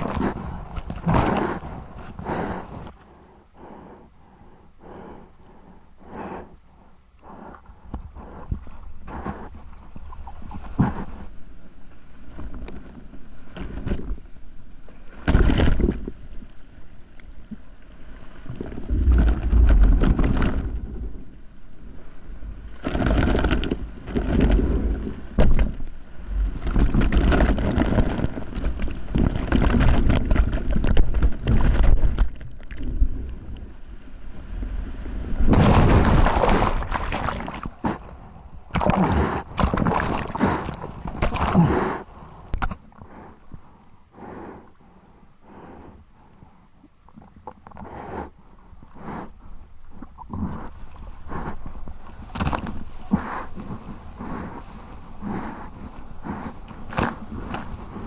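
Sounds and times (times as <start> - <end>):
low water buffeting: 0.0 - 12.4, 16.2 - 58.0
whitewater splashes: 35.5 - 42.2
seawater rushing and splashing: 35.5 - 42.6.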